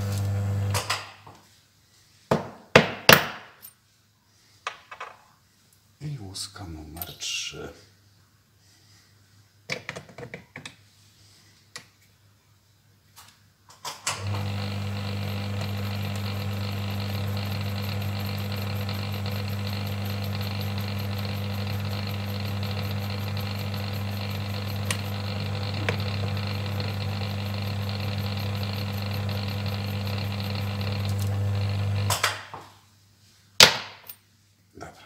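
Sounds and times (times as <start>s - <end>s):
electric motor humming: 14.2s - 32.1s.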